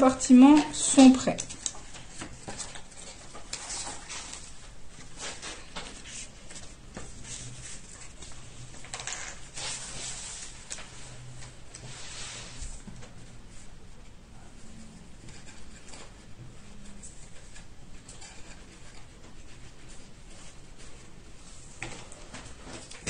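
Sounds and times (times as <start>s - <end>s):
paper rustling: 0.4s - 13.2s.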